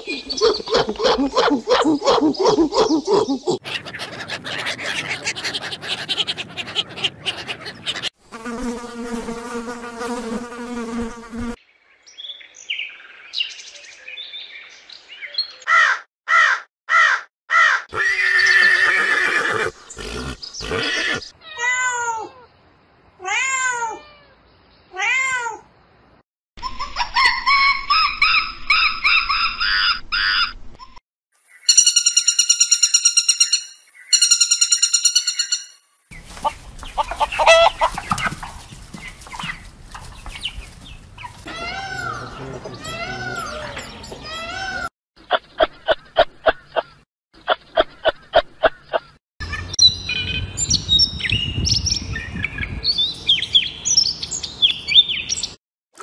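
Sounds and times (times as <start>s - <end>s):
monkey high calls: 0.0s - 8.1s, 15.7s - 22.3s, 26.6s - 30.6s, 36.4s - 38.6s, 41.2s - 44.9s
chickens clucking and peeping: 36.2s - 41.5s
robin warbling song: 49.5s - 55.6s.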